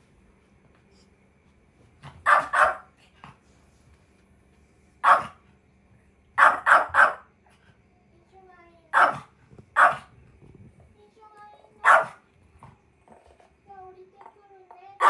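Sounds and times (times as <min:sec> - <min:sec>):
small dog barking sharply: 0:02.2 - 0:02.9, 0:05.0 - 0:05.4, 0:06.4 - 0:07.2, 0:08.9 - 0:10.1, 0:11.8 - 0:12.2.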